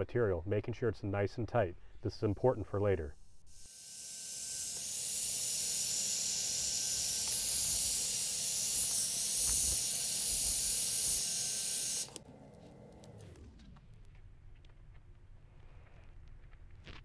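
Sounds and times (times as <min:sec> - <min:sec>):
hair dryer blowing: 0:04.7 - 0:13.4.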